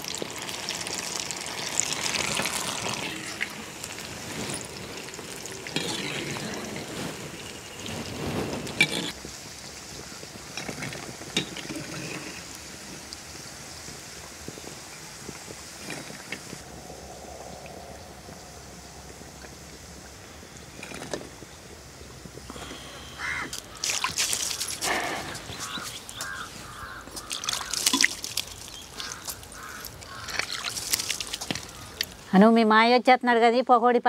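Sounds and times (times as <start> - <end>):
hot oil sizzling: 0.0 - 16.7
water splashing and trickling: 0.0 - 32.4
crows cawing: 23.0 - 28.0, 29.0 - 30.7, 31.5 - 32.1.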